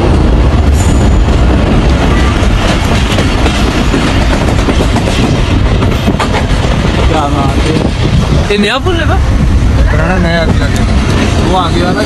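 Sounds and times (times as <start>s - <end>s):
train wheels rumbling on rails: 0.0s - 12.0s
clickety-clack wheel clatter: 2.5s - 8.4s.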